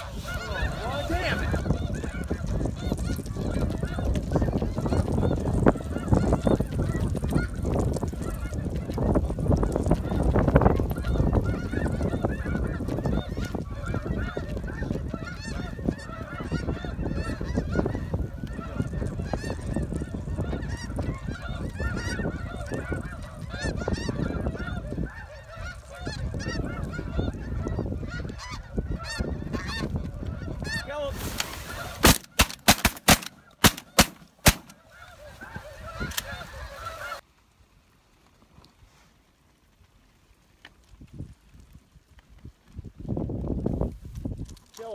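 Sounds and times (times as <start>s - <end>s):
geese honking: 0.0s - 37.2s
shotgun shots: 32.0s - 34.8s.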